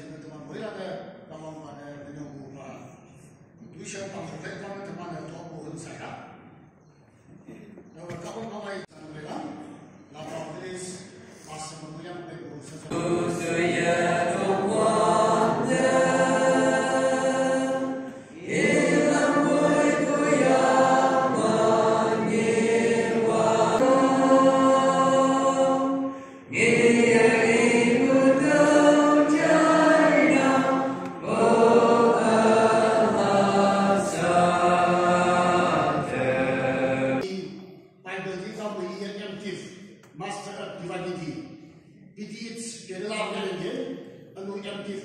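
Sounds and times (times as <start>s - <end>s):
group singing a hymn: 12.9s - 37.3s.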